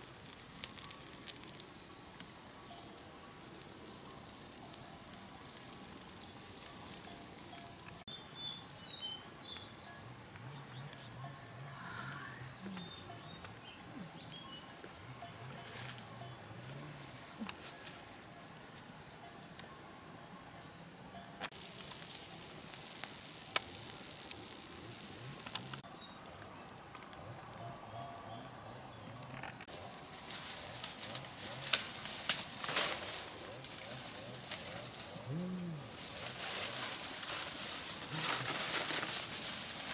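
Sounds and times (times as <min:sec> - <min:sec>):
crackling rustles: 0:00.0 - 0:08.1, 0:12.8 - 0:19.0, 0:21.4 - 0:27.8, 0:29.0 - 0:39.9
insects droning: 0:00.0 - 0:39.9
loud high hiss: 0:21.5 - 0:25.8.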